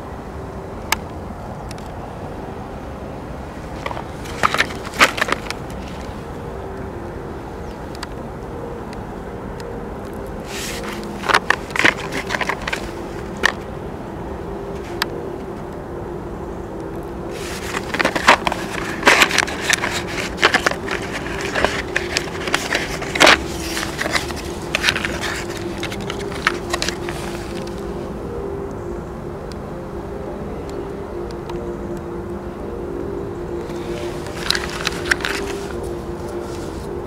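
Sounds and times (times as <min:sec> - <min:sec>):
cardboard box rustling and scraping: 0:03.7 - 0:06.2, 0:10.4 - 0:13.6, 0:17.3 - 0:27.8, 0:33.7 - 0:36.9.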